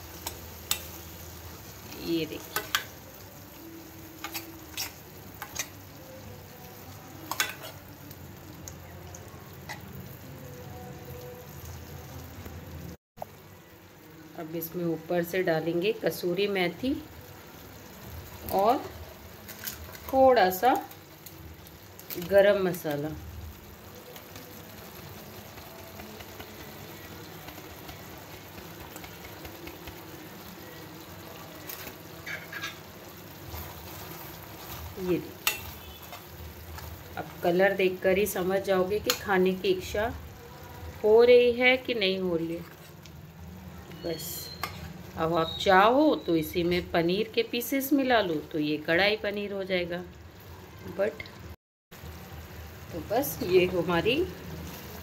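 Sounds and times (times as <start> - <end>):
sauce sizzling: 0.0 - 55.0
spoon clicking against pan: 0.2 - 1.0, 2.5 - 2.9, 7.3 - 7.7, 35.4 - 36.9, 39.0 - 39.3, 44.6 - 44.8
curry simmering and bubbling: 22.8 - 38.4.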